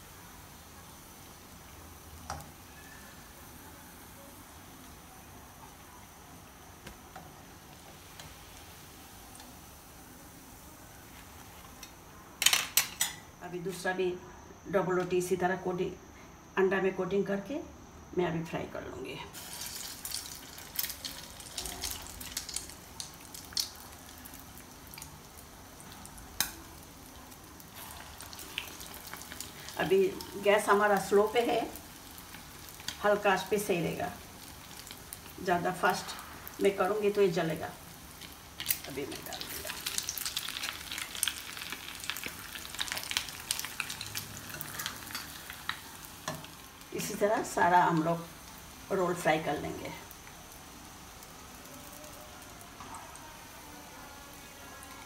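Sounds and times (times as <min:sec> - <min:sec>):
bread frying in oil: 0:00.0 - 0:13.2, 0:19.3 - 0:55.0
oil spattering crackles: 0:19.4 - 0:33.4, 0:34.2 - 0:48.9.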